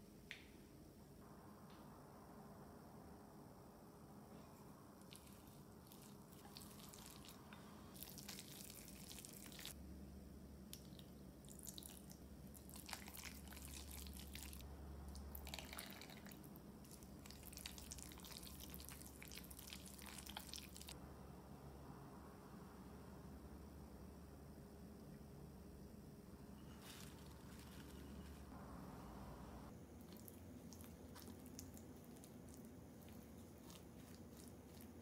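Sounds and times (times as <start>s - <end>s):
wet squishing and smacking: 5.0s - 9.8s, 10.7s - 14.6s, 15.2s - 21.0s, 30.0s - 35.0s.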